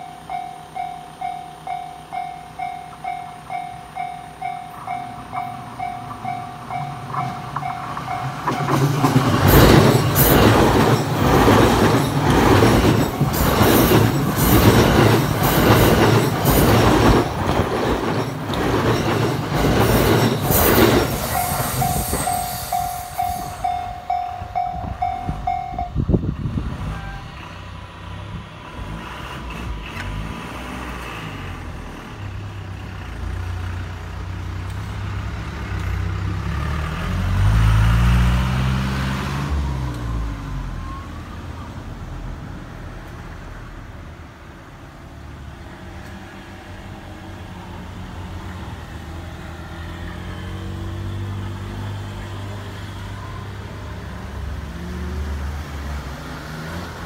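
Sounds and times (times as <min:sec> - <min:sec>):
level crossing bell ringing: 0:00.0 - 0:08.7, 0:21.2 - 0:26.0
train wheels clacking on rails: 0:00.0 - 0:26.0
vehicle engine passing: 0:28.0 - 0:40.8.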